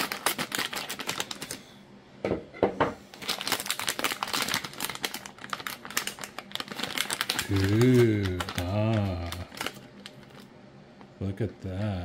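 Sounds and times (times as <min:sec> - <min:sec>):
plastic bag crinkling: 0:00.0 - 0:01.7, 0:03.1 - 0:10.5.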